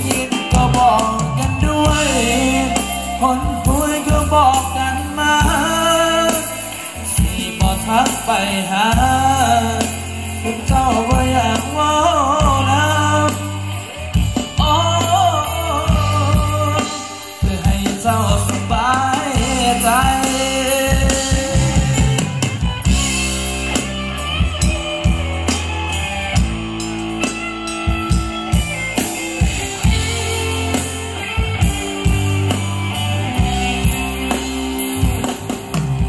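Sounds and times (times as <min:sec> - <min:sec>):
person singing: 0:00.0 - 0:23.3
bass: 0:00.0 - 0:36.0
drums: 0:00.0 - 0:36.0.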